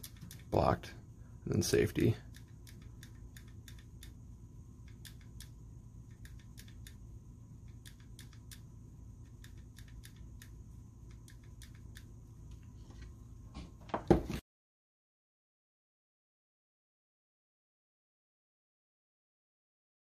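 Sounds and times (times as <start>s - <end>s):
small mechanical clicks: 0.0s - 0.7s, 2.2s - 4.2s, 4.8s - 7.0s, 7.7s - 12.1s.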